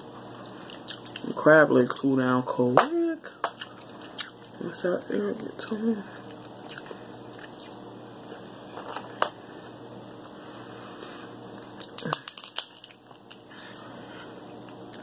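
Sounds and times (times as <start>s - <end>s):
crab shells cracking: 11.8s - 13.9s.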